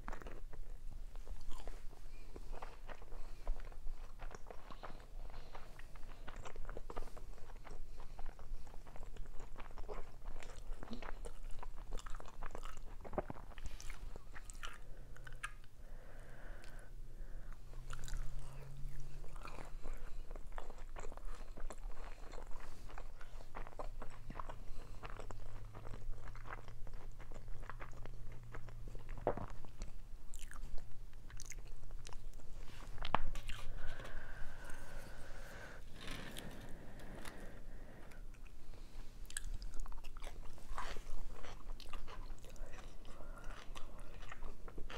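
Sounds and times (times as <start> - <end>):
close chewing and biting: 0.0 - 15.8, 17.5 - 44.9.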